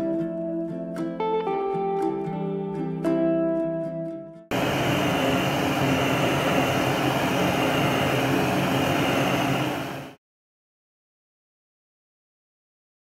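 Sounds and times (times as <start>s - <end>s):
blowtorch hissing: 4.5s - 10.2s.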